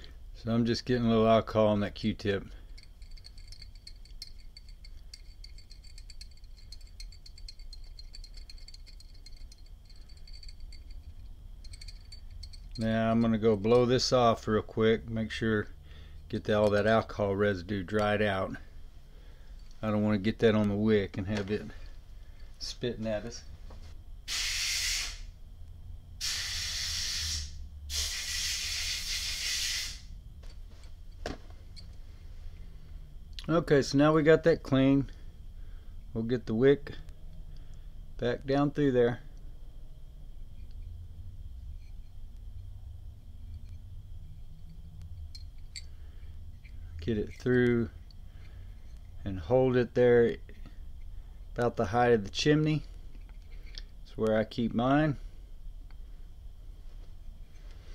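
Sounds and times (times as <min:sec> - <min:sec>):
low steady hum: 0:00.0 - 0:57.9
compressed air hissing: 0:24.3 - 0:25.4, 0:26.2 - 0:30.2.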